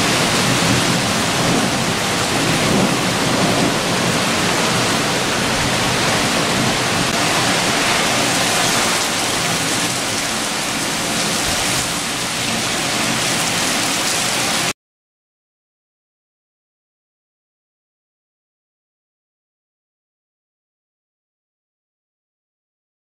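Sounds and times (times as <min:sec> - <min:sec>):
heavy rain falling: 0:00.0 - 0:14.8.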